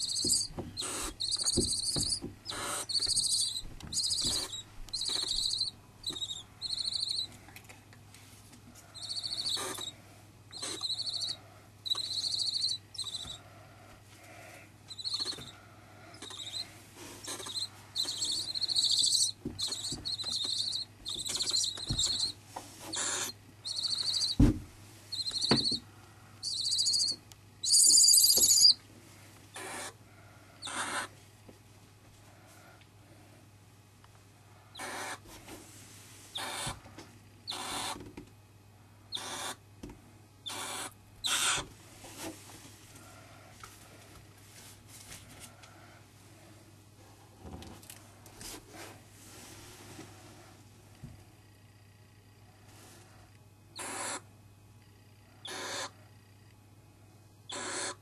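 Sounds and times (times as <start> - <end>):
owl chicks hissing: 0.0 - 7.4, 8.7 - 24.4, 25.1 - 28.8, 29.5 - 31.2, 34.7 - 36.8, 37.5 - 38.0, 39.1 - 39.6, 40.4 - 42.3, 53.8 - 54.3, 55.4 - 56.0, 57.5 - 58.0.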